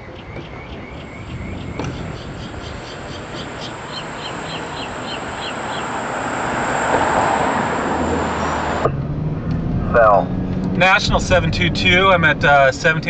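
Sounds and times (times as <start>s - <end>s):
bird chirping: 0.0s - 6.5s
steady rushing noise: 0.0s - 13.0s.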